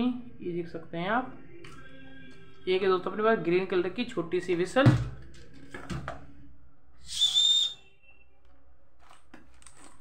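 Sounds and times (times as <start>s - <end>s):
toy whistle blast: 7.1s - 8.0s.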